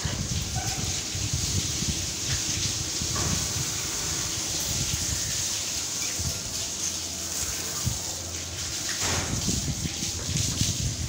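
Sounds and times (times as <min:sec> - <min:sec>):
hose water spraying: 0:00.0 - 0:11.0.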